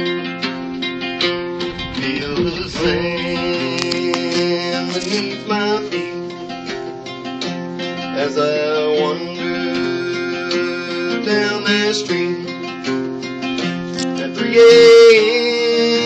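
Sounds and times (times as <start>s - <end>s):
acoustic guitars strumming: 0.0s - 16.0s
man singing: 1.7s - 6.8s, 8.0s - 13.1s, 14.0s - 16.0s.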